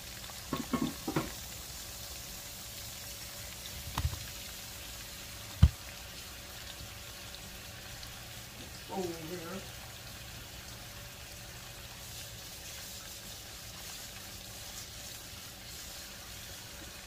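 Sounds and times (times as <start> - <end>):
corn sizzling in a skillet: 0.0 - 17.0
kitchenware clunks: 0.5 - 1.4.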